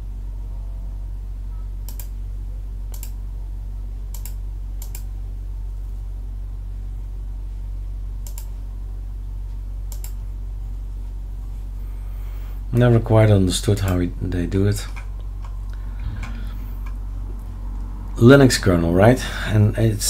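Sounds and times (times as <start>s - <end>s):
steady low hum: 0.0s - 20.0s
computer mouse clicking: 1.9s - 2.2s, 2.9s - 3.2s, 4.1s - 5.1s, 8.2s - 8.5s, 9.9s - 10.2s.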